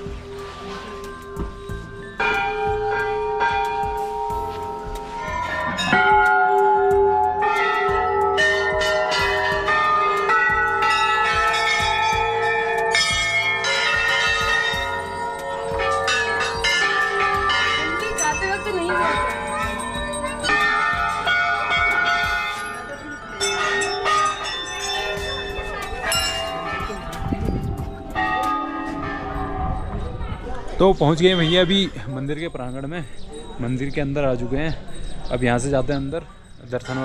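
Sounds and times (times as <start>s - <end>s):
temple bells ringing: 0.0s - 37.0s.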